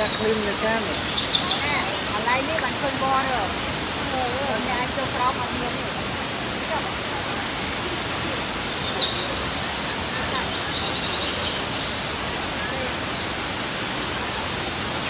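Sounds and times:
bird chirping and trilling: 0:00.0 - 0:02.3, 0:07.8 - 0:14.6
waterfall rushing over rock: 0:00.0 - 0:15.0.

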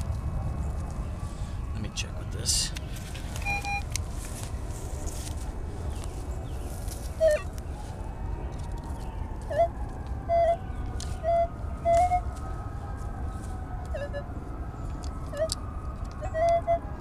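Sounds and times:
metal detector beeps: 0:03.4 - 0:03.9.

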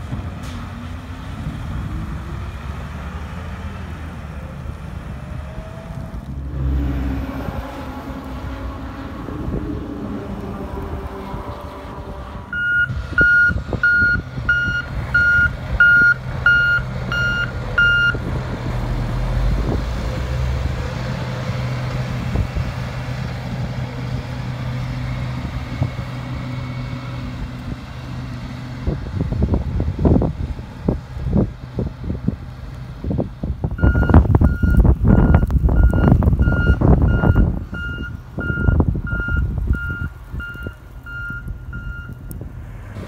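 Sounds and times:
diesel engine humming: 0:00.0 - 0:43.0
backup alarm beeping: 0:12.5 - 0:18.2.

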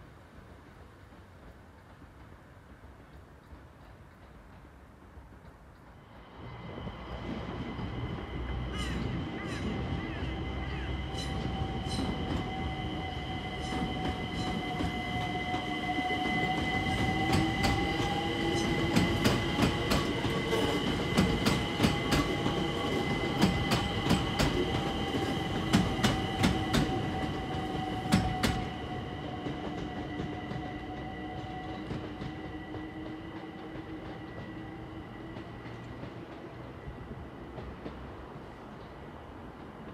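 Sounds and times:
train wheels clicking over rail joints: 0:00.2 - 0:09.8, 0:11.0 - 0:39.9.

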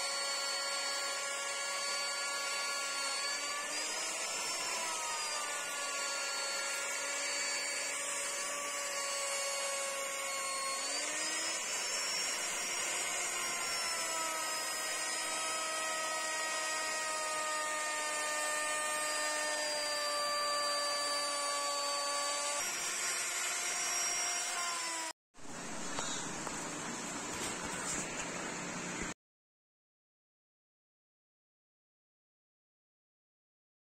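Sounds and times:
electric router cutting wood: 0:00.0 - 0:25.2.

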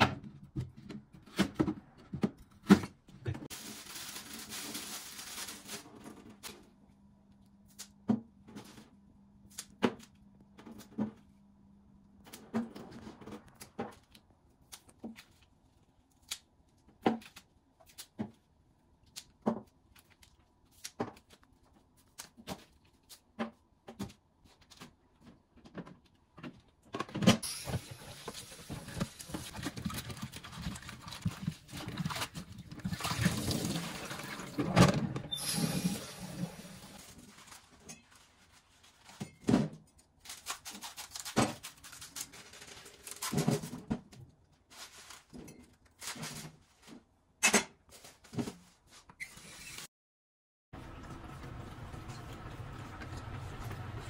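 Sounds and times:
liquid splashing and sloshing: 0:27.5 - 0:37.5.

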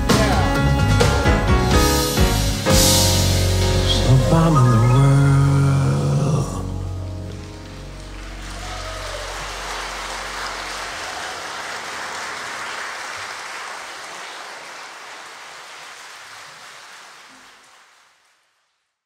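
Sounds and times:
jazz band held low note: 0:00.0 - 0:11.0
audience applauding: 0:06.0 - 0:18.7.

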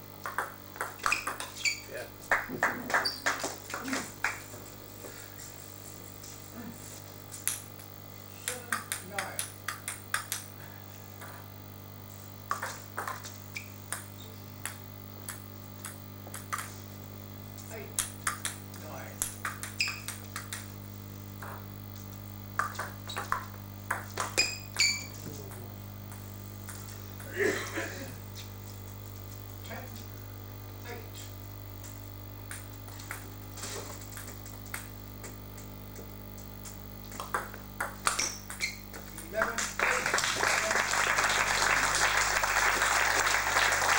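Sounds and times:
steady low hum: 0:00.0 - 0:43.9
table tennis ball clicks: 0:00.2 - 0:01.8, 0:08.5 - 0:10.5, 0:13.9 - 0:16.7, 0:18.0 - 0:18.6, 0:19.2 - 0:20.7, 0:22.6 - 0:26.8, 0:36.6 - 0:39.5.

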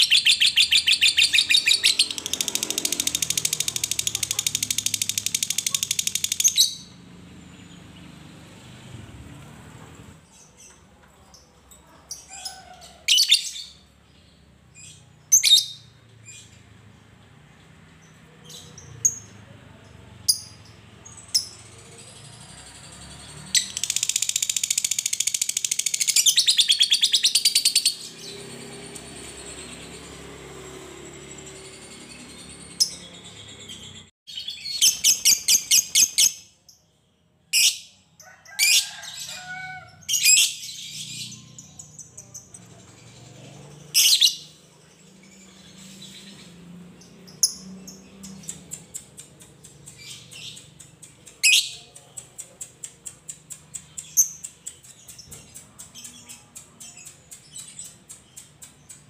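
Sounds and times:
lovebird chirping and trilling: 0:00.0 - 0:07.0, 0:20.3 - 0:36.4, 0:43.6 - 0:52.0.

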